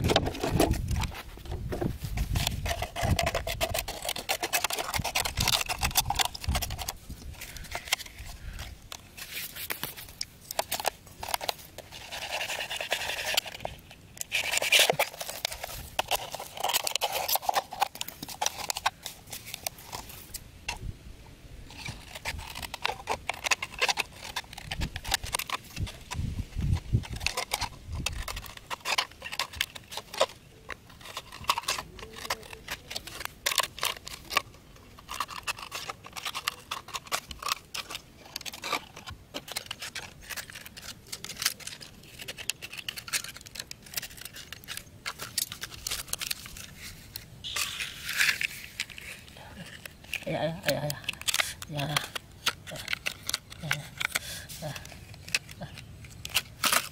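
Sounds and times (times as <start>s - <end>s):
plastic bottle crackling: 0.0s - 20.8s, 21.7s - 56.9s.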